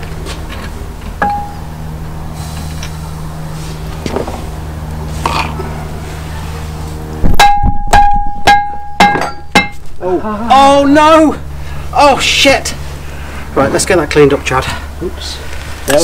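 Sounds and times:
low hum: 0:00.0 - 0:15.9
mallet striking ringing brake disc: 0:01.2 - 0:01.6, 0:07.3 - 0:09.8.

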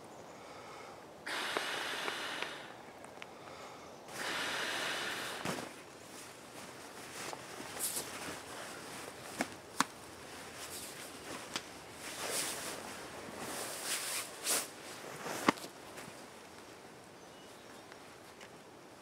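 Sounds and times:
fabric rustling and swishing: 0:05.2 - 0:16.2.

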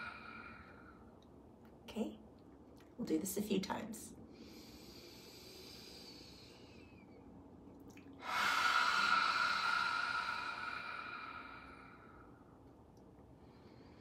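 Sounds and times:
faint breath in: 0:00.0 - 0:01.1, 0:08.2 - 0:12.5
loud breathy exhale: 0:08.2 - 0:12.4.

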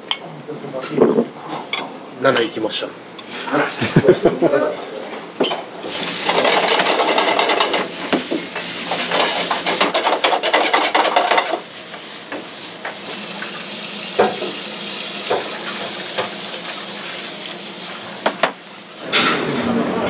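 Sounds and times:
utensil scraping a pan: 0:05.8 - 0:18.4
food sizzling in a pan: 0:05.8 - 0:19.2.

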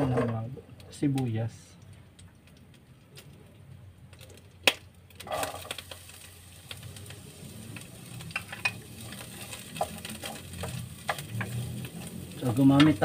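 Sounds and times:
onion sizzling in hot oil: 0:04.3 - 0:13.0.

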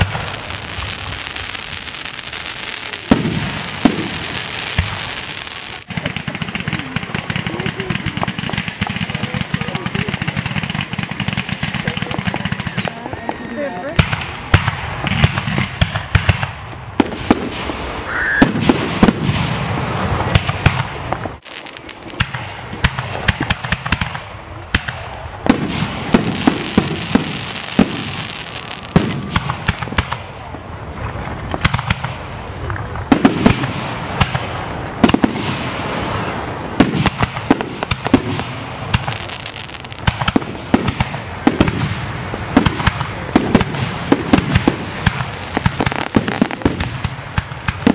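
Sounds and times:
fireworks bursting: 0:00.0 - 0:47.9.

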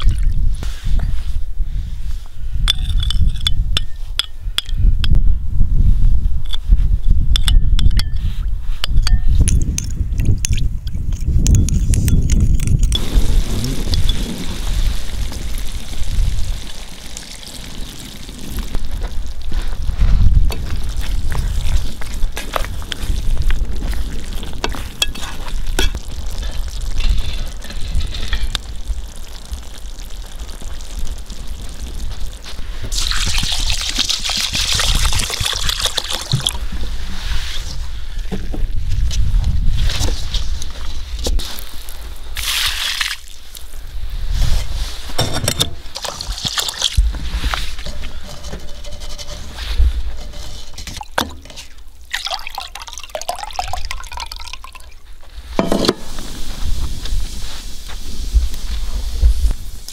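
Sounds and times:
pot simmering: 0:12.9 - 0:37.2, 0:45.8 - 0:59.9
water pouring onto rice: 0:13.0 - 0:36.8, 0:45.9 - 0:49.2, 0:50.2 - 0:55.0
water dripping from strainer: 0:25.4 - 0:36.6, 0:51.0 - 0:55.0
water sloshing: 0:50.2 - 0:55.0.

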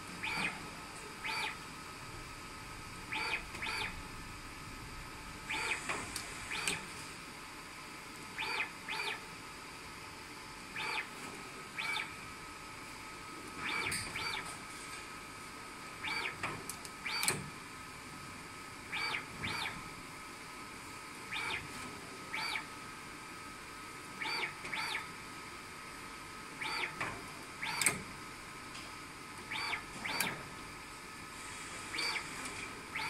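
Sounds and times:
robot motors whining: 0:00.2 - 0:00.6, 0:01.2 - 0:01.6, 0:03.1 - 0:03.9, 0:08.4 - 0:09.2, 0:10.8 - 0:11.1, 0:11.8 - 0:12.1, 0:13.6 - 0:14.5, 0:16.0 - 0:16.4, 0:18.9 - 0:19.8, 0:21.3 - 0:21.7.

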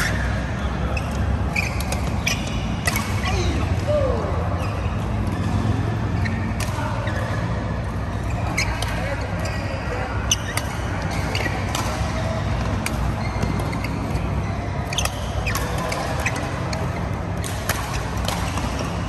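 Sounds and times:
shoes squeaking on court: 0:00.0 - 0:03.8, 0:04.5 - 0:19.0
low hall hum: 0:00.0 - 0:19.0
rackets striking shuttlecock: 0:01.0 - 0:03.9, 0:10.4 - 0:19.0.

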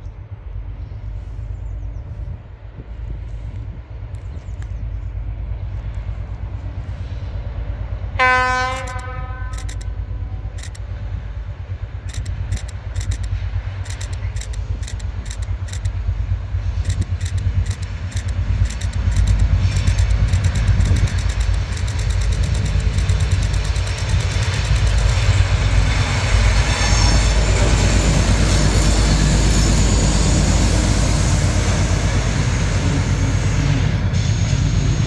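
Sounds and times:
low locomotive rumble: 0:00.0 - 0:35.0
train horn blast: 0:08.2 - 0:09.7
wheels clicking over rail joints: 0:08.7 - 0:10.9, 0:12.0 - 0:33.7.

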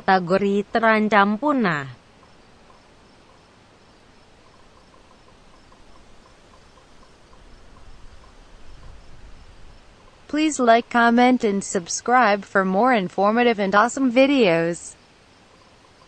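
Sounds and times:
steady hiss: 0:02.0 - 0:11.6
soft high ticks: 0:02.2 - 0:03.4.

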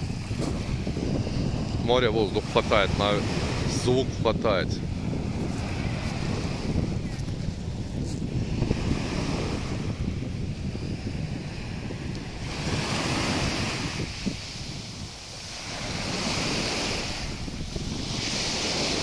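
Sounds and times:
wind buffeting microphone: 0:00.0 - 0:19.0
sea waves breaking on pebbles: 0:11.2 - 0:19.0.

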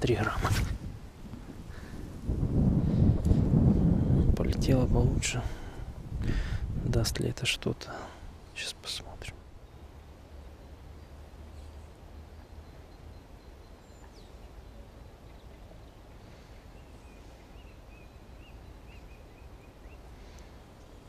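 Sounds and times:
wind rumble on microphone: 0:00.0 - 0:07.4
bird chirps and twittering: 0:10.6 - 0:20.2.

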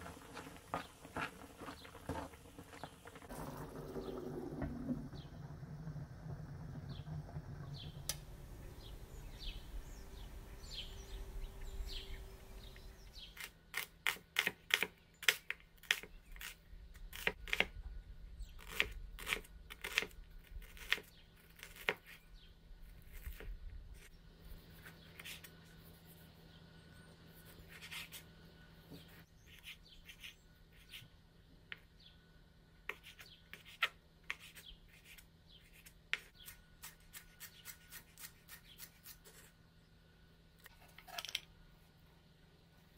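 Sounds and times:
faint steady hum: 0:00.0 - 0:14.3, 0:22.3 - 0:42.9
low rumble: 0:03.3 - 0:13.2.

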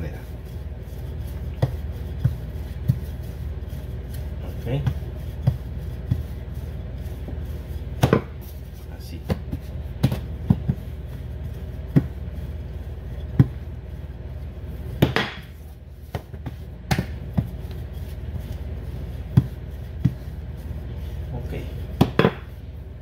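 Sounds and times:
rolling pin rolling dough: 0:00.0 - 0:23.0
rolling pin knocking on counter: 0:08.0 - 0:08.4, 0:15.0 - 0:15.5, 0:22.0 - 0:22.5.

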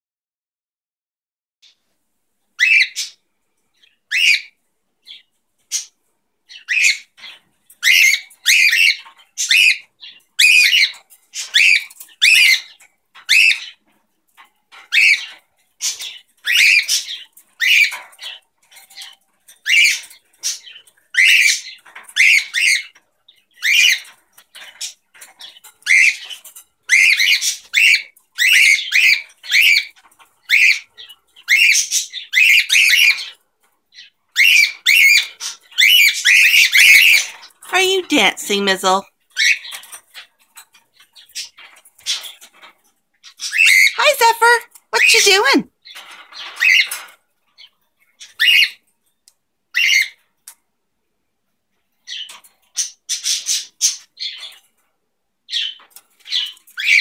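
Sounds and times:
cockatiels chirping squawks: 0:02.6 - 0:03.2, 0:04.1 - 0:05.9, 0:06.5 - 0:13.8, 0:14.8 - 0:18.4, 0:19.0 - 0:23.0, 0:23.6 - 0:33.4, 0:34.0 - 0:37.6, 0:43.2 - 0:48.8, 0:49.7 - 0:50.2, 0:55.5 - 0:57.0.

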